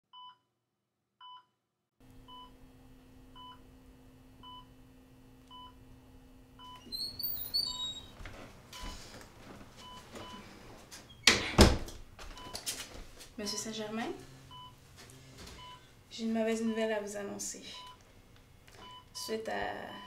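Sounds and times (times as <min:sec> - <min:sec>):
heart monitor beeping: 0:06.6 - 0:08.1, 0:08.8 - 0:09.1, 0:09.8 - 0:10.5, 0:14.5 - 0:14.8, 0:15.6 - 0:15.9, 0:17.7 - 0:18.0, 0:18.8 - 0:19.3
high chirps: 0:06.8 - 0:08.1
low steady hum: 0:13.2 - 0:20.0.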